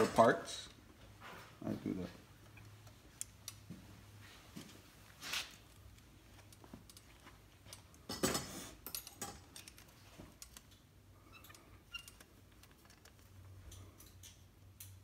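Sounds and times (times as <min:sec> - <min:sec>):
screws and screwdriver clinking: 0:06.4 - 0:13.2.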